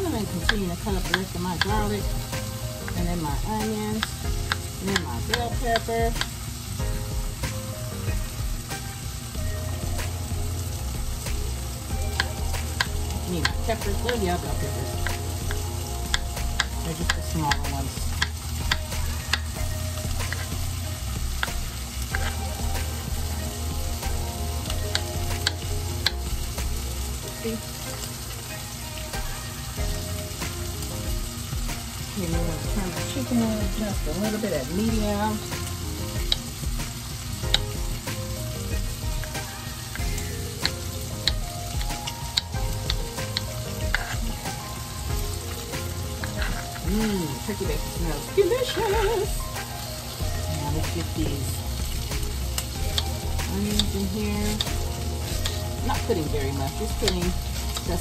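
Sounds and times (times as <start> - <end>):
bacon sizzling in a frying pan: 0.0 - 58.0.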